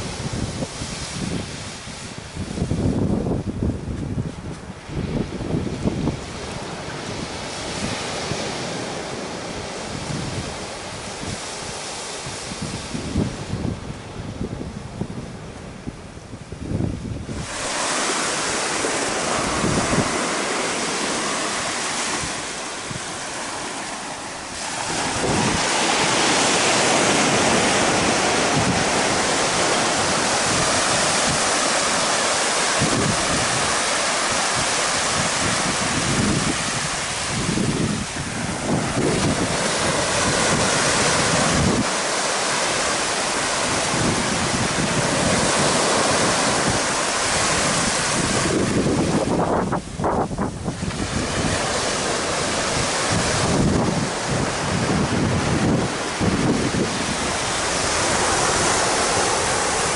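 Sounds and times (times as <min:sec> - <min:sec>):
waves breaking on sand beach: 0:00.0 - 0:59.9
wind buffeting microphone: 0:00.0 - 0:59.9.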